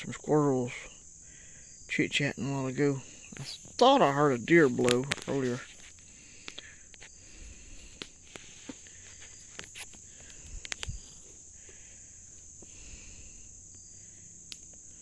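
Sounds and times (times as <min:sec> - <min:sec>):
insects chorus: 0:00.0 - 0:15.0
light clicks and rustles: 0:07.8 - 0:11.8.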